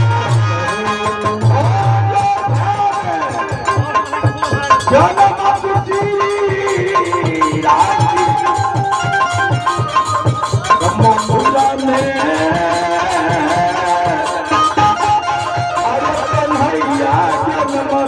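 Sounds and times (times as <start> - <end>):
dholak drum beating: 0.0 - 18.0
held melodic tones: 0.0 - 18.0
jingling hand percussion: 0.0 - 18.0
man singing through a microphone: 0.0 - 18.0.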